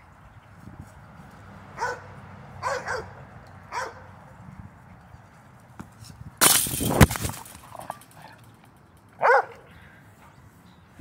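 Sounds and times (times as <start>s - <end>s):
dog barking: 1.8s - 4.1s, 9.2s - 9.7s.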